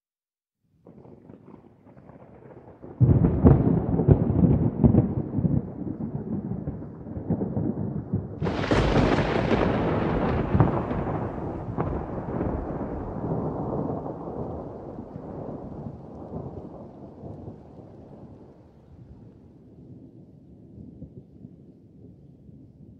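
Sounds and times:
thunder rumbling: 0.9 - 22.2
sharp thunder crack: 1.0 - 17.6.

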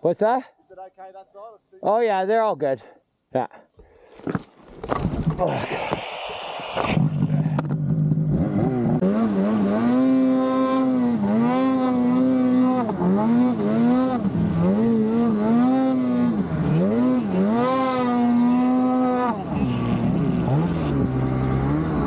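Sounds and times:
snowmobile engine revving: 6.7 - 22.0.

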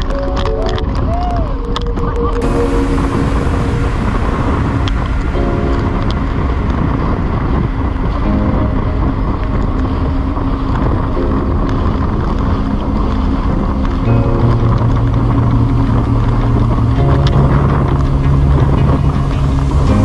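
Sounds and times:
wind buffeting microphone: 0.0 - 20.0
jet ski engine: 1.8 - 20.0
water spray: 2.4 - 8.9, 11.9 - 20.0
music of held chords: 2.4 - 20.0.

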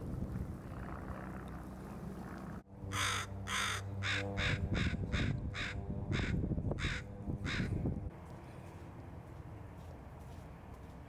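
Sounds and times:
crow cawing: 2.9 - 7.8.

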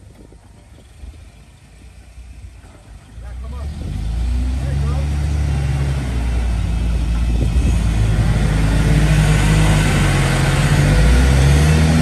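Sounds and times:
truck engines running under load: 0.0 - 12.0.

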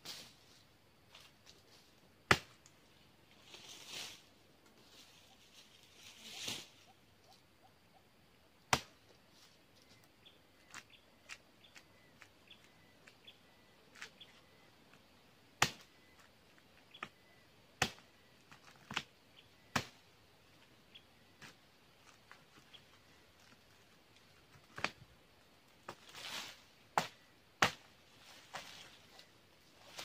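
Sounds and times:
leaves rustling: 0.0 - 7.4, 19.8 - 30.0
machete strikes: 8.7 - 8.9, 15.6 - 15.9.

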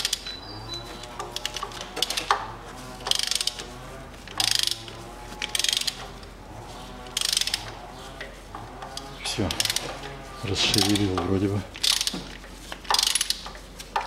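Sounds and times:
ratchet wrench clicking: 3.1 - 3.6, 4.3 - 4.8, 5.5 - 6.0, 7.2 - 7.7, 9.0 - 9.8, 11.8 - 13.5.

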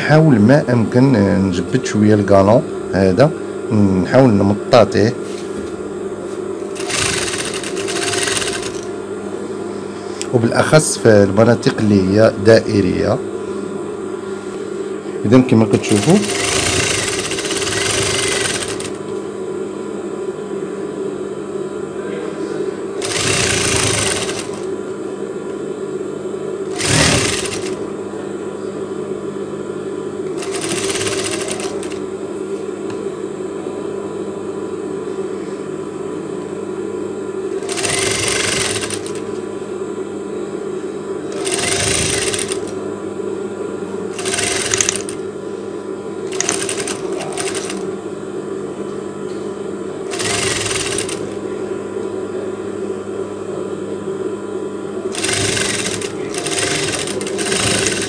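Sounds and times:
sewing machine motor humming: 6.7 - 9.0, 15.8 - 19.0, 23.0 - 24.8, 26.7 - 27.8, 30.3 - 32.0, 37.6 - 39.3, 41.3 - 42.8, 44.1 - 45.2, 46.3 - 47.8, 50.1 - 51.4, 55.1 - 58.0
sewing machine stitching: 6.8 - 8.9, 15.9 - 19.0, 23.0 - 24.7, 26.7 - 27.8, 30.4 - 32.0, 37.6 - 39.2, 41.4 - 42.7, 44.2 - 45.2, 46.3 - 47.8, 50.1 - 51.2, 55.2 - 58.0.

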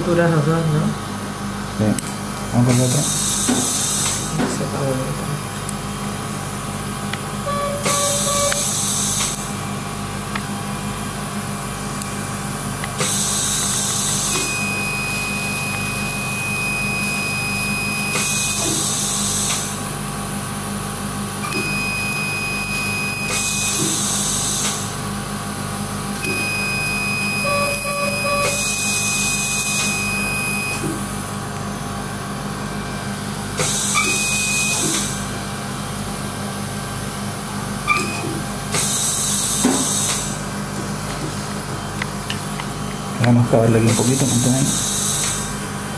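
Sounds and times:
low hum of equipment: 0.0 - 45.9
high electronic beep: 7.4 - 8.8, 14.4 - 18.6, 26.2 - 30.8
short bursts of hissing air: 44.0 - 45.5.

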